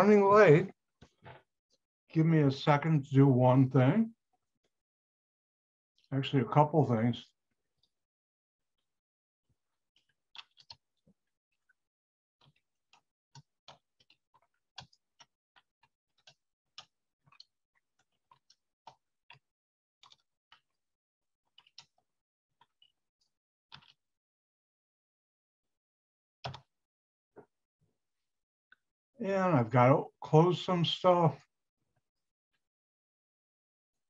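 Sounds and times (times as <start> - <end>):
keyboard and mouse clicks: 26.4 - 26.7.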